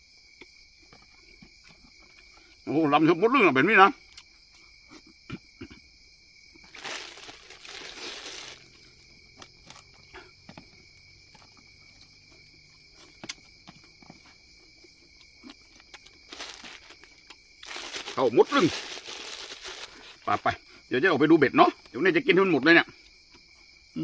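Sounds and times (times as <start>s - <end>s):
crickets chirring: 0.0s - 24.0s
plastic bag crinkling: 6.6s - 10.0s, 15.6s - 20.2s.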